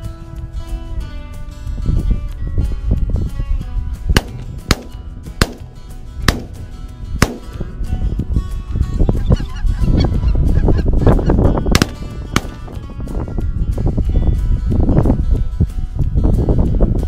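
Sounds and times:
wind rumbling on microphone: 0.0 - 17.0
shotgun shots: 4.2 - 6.6, 7.2 - 7.6, 11.7 - 12.7.

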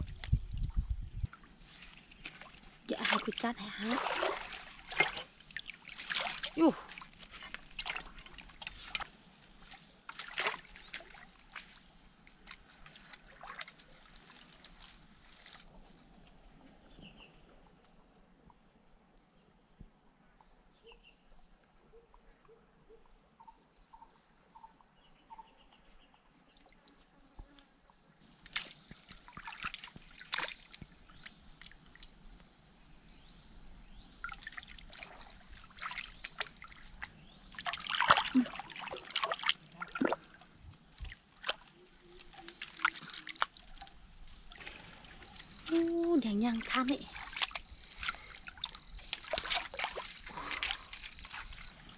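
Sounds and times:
water splashing in a stream: 0.0 - 15.8, 28.2 - 32.4, 33.9 - 51.9
faint bird chirps: 20.2 - 26.6.

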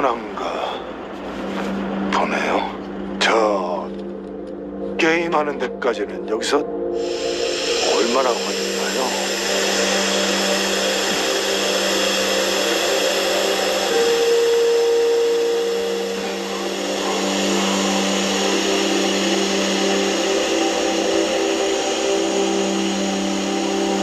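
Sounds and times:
low droning tones: 0.0 - 24.0
bright tone: 6.9 - 24.0
steady hiss: 7.0 - 24.0.

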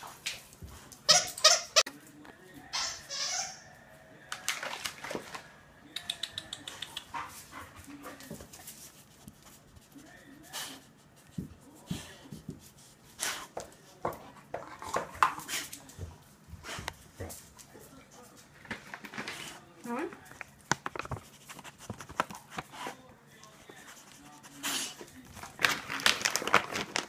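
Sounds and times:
clicks and rustles: 25.1 - 27.0.

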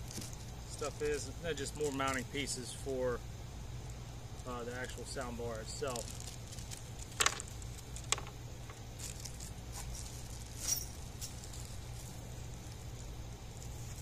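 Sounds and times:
low steady hum: 0.0 - 14.0
packaging rustling: 5.8 - 14.0.

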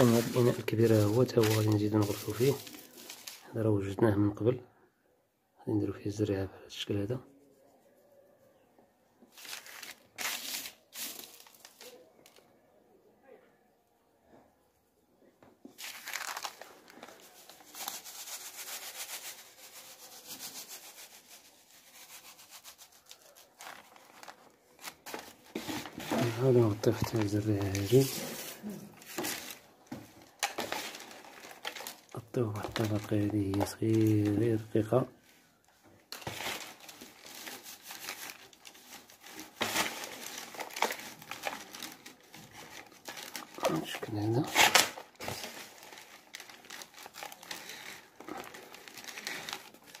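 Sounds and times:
scrape: 0.0 - 3.4, 17.1 - 23.8, 25.1 - 26.5, 27.8 - 29.6
dry soil rustling: 0.0 - 3.6, 9.4 - 11.9
paper rustling and scraping: 0.0 - 3.6, 9.3 - 12.4, 15.7 - 35.4, 36.0 - 50.0.

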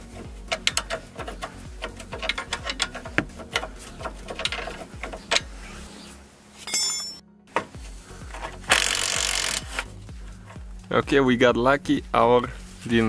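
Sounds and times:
ratchet wrench clicking: 0.1 - 5.5, 8.3 - 9.9.

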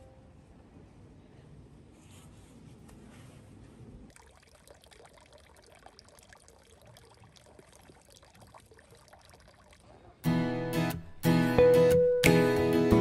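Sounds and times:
trickling water: 4.1 - 10.2.

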